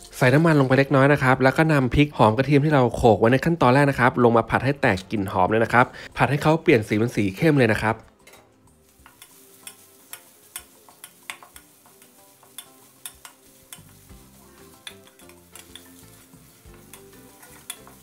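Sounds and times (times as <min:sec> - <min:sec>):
faint sizzle: 0:05.4 - 0:18.0
spatula scraping and knocking wok: 0:08.1 - 0:18.0.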